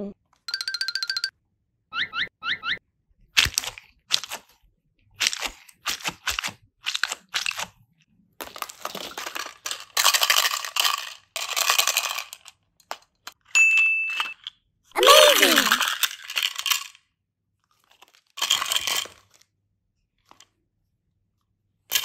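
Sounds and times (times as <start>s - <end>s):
plastic toys clicking and knocking: 0.4s - 1.3s, 3.3s - 17.1s, 17.7s - 19.5s, 20.2s - 20.6s
plastic wrappers crinkling: 3.4s - 4.6s, 5.2s - 7.8s, 8.4s - 13.3s, 15.0s - 17.0s, 17.7s - 19.4s
high ding: 13.6s - 14.4s.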